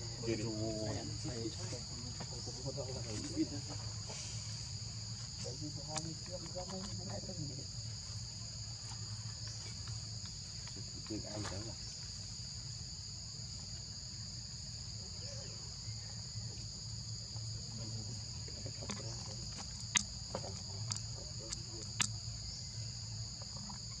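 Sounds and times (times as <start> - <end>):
insect chorus droning: 0.0 - 24.0
sharp clicks: 20.8 - 22.2.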